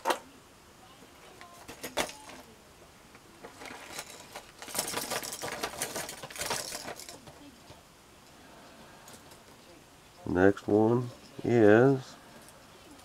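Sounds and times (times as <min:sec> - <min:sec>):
rustling: 0:01.1 - 0:07.8.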